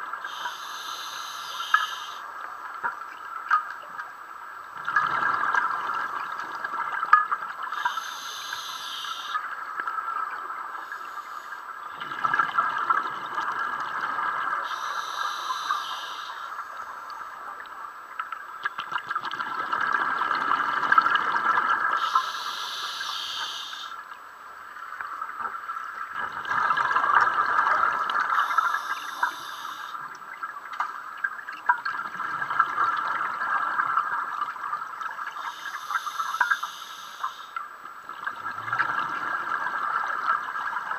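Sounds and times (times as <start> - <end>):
regulator inhalation hiss: 0.2 - 2.2, 7.7 - 9.4, 10.8 - 11.6, 14.6 - 16.9, 22.0 - 24.0, 28.3 - 30.0, 35.4 - 37.6
exhaled air bubbling: 4.8 - 17.6, 18.6 - 24.0, 25.1 - 40.9.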